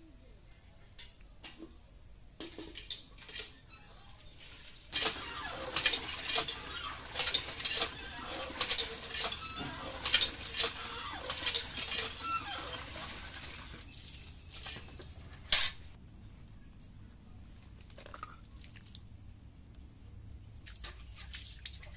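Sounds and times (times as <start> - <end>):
hand pump handle clanking: 4.9 - 13.8
water gushing into metal bucket: 5.0 - 15.4.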